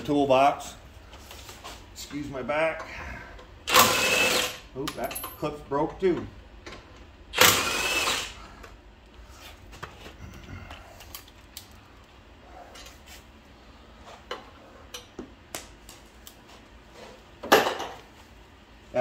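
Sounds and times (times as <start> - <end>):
hand tools and metal parts clinking: 4.2 - 6.0.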